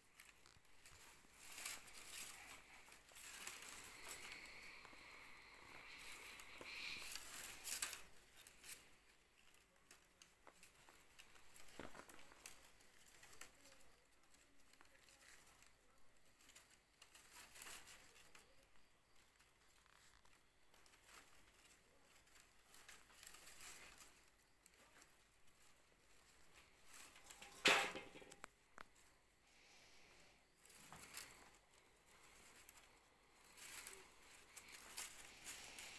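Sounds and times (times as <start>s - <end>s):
bamboo strips rustling: 0.0s - 35.9s.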